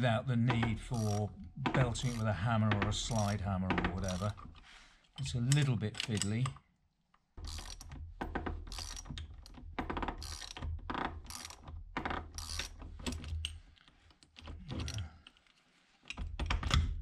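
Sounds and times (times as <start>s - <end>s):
ratchet wrench clicking: 7.4s - 7.9s, 8.7s - 9.1s, 9.9s - 13.5s.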